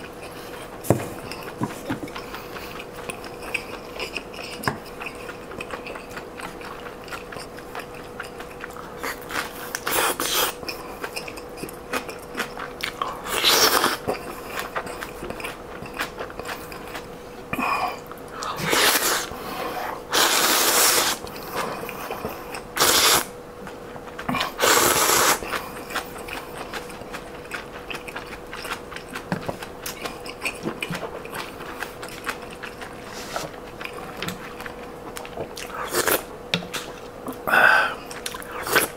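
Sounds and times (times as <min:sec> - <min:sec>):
chewing and lip-smacking: 0:00.0 - 0:17.1, 0:20.4 - 0:38.9
loud slurps of noodles: 0:20.1 - 0:21.2, 0:22.8 - 0:23.3, 0:24.6 - 0:25.4.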